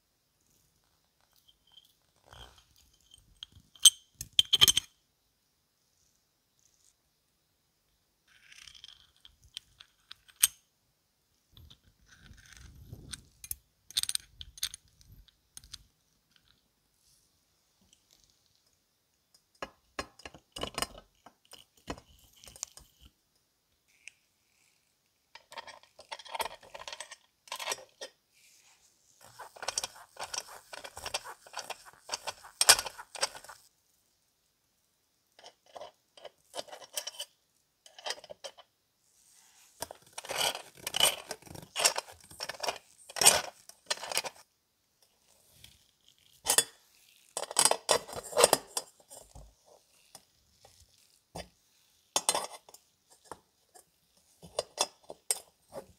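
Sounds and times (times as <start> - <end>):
metal parts clicking on ceramic: 11.6 - 16.7, 29.2 - 33.7, 39.8 - 44.4
metal scraping and rubbing: 28.5 - 33.7.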